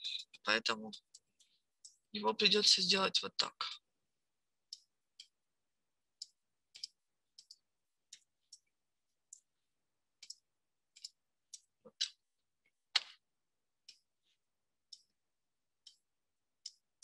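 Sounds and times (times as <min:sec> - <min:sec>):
mouse clicks: 0:06.2 - 0:08.7, 0:11.0 - 0:12.2.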